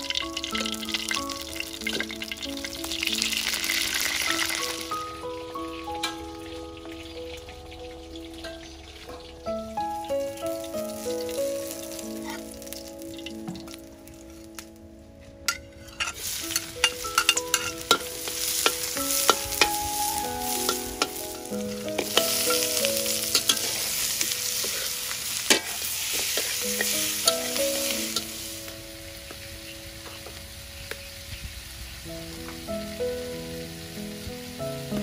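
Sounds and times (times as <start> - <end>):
meat sizzling in a wok: 0.0 - 14.6, 16.0 - 35.0
metal spatula scraping a pan: 15.5 - 19.8, 21.9 - 27.6.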